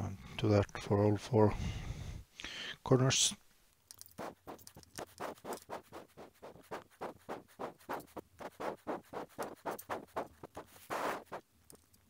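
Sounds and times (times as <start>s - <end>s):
zip tie ratcheting rasps: 3.9s - 11.8s.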